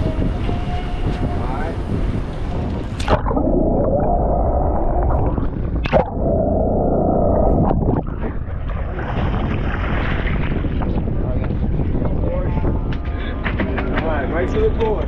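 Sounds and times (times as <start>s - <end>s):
muffled underwater water rushing: 1.7s - 12.9s
water splashing at surface: 2.8s - 11.2s
sharp splash: 3.0s - 3.4s, 5.2s - 6.2s.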